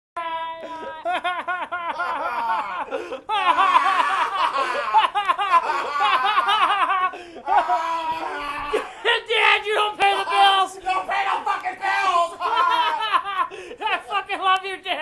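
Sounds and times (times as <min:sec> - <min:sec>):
person laughing: 0:00.6 - 0:09.1, 0:12.0 - 0:14.5.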